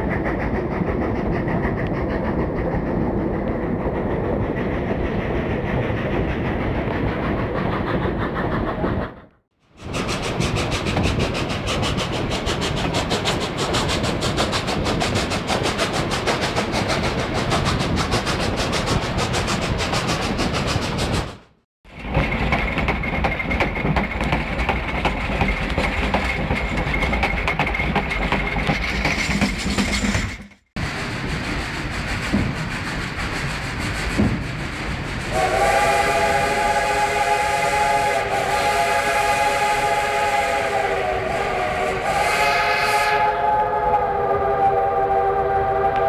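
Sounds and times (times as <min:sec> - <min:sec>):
train wheels clattering over joints: 0:00.0 - 0:35.4
train cars rattling: 0:00.0 - 0:45.8
steam locomotive whistle: 0:35.3 - 0:46.0.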